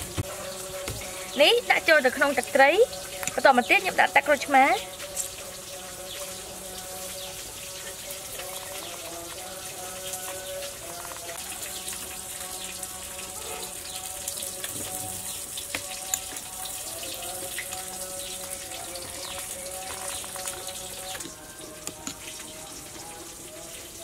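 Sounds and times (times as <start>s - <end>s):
soft background music: 0.0s - 24.0s
spoon stirring liquid in glass bowl: 13.9s - 23.7s.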